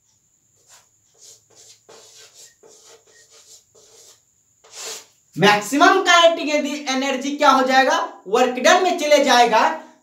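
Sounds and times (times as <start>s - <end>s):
chalk scratching on chalkboard: 0.6s - 5.2s.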